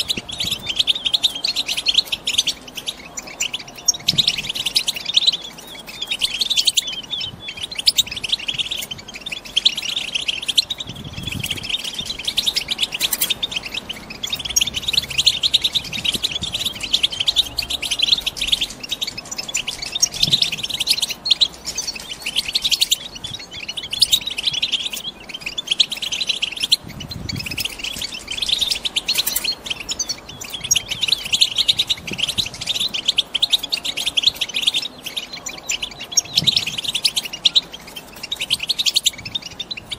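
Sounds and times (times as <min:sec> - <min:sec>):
finches twittering: 0:00.0 - 0:39.9.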